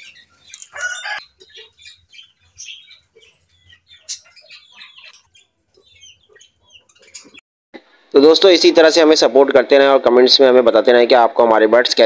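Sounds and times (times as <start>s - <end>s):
caged birds chirping: 0.0s - 7.4s.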